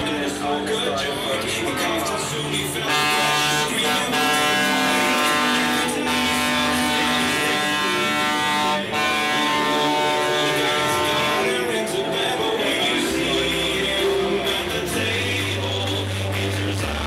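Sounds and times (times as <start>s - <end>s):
loud music with buzzy chords: 0.0s - 17.0s.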